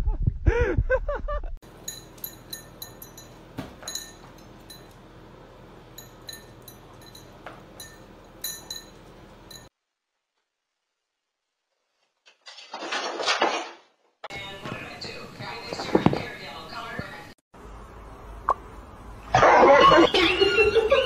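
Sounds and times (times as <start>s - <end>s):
metallic jingles and clinks: 1.8s - 5.0s, 5.9s - 9.7s.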